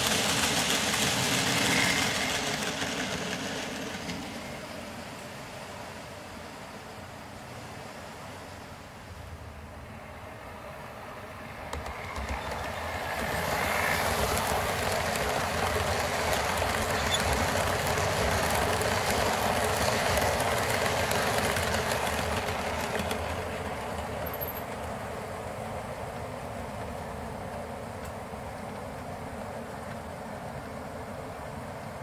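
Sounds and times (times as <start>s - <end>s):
model train wheels rumbling: 0.0s - 4.8s, 11.5s - 30.2s.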